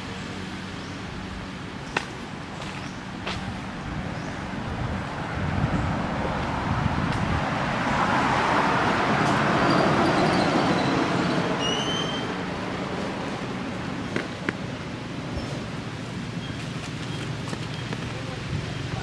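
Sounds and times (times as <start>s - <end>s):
vehicle passing by: 0.0s - 14.4s.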